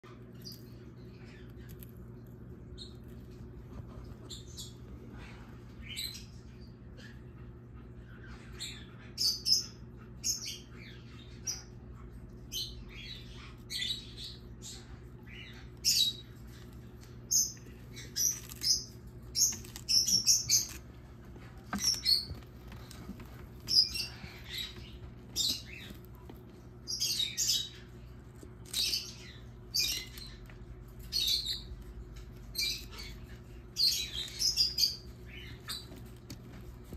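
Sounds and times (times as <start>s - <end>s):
tortoise crunching lettuce: 0.0s - 5.5s, 14.9s - 36.9s
low steady hum: 0.0s - 36.9s.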